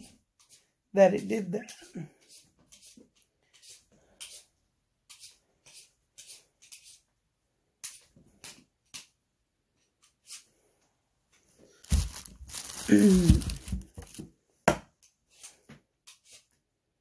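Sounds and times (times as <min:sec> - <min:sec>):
vegetable peeler scraping potato: 0:00.0 - 0:07.1, 0:15.3 - 0:16.6.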